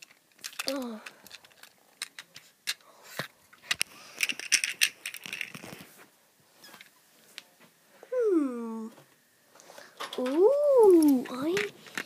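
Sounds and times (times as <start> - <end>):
handling clicks and rattles: 3.6 - 5.8.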